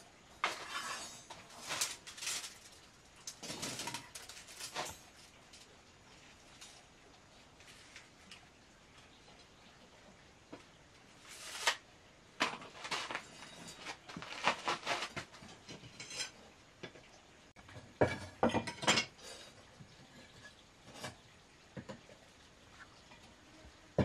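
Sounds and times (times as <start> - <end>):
metal tools and wire clinking: 0.4 - 5.8, 12.4 - 16.4.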